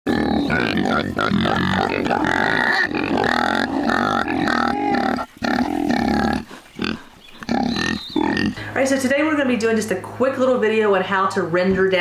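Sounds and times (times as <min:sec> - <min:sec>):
pigs grunting: 0:00.1 - 0:08.8.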